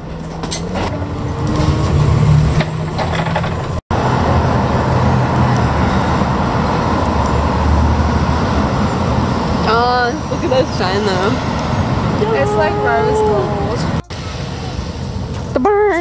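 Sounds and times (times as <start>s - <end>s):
bus engine drone: 0.0s - 16.0s
street traffic: 0.0s - 16.0s
rattles: 0.3s - 3.8s.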